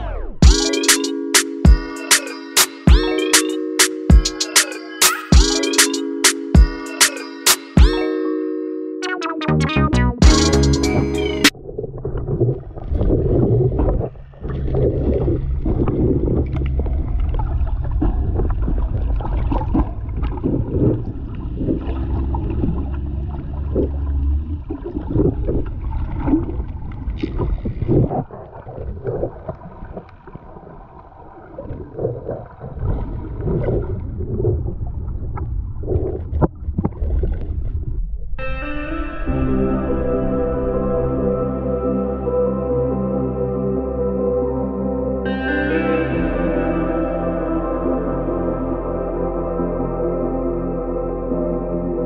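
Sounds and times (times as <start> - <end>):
water sloshing and gurgling underwater: 11.0 - 38.4.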